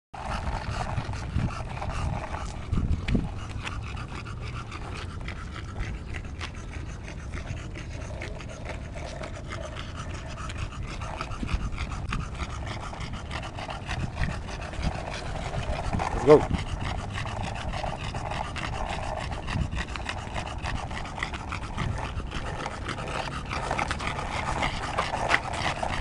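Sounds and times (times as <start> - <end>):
skateboard wheels rolling on asphalt: 0.2 - 5.4, 9.0 - 26.0
dog panting: 0.2 - 26.0.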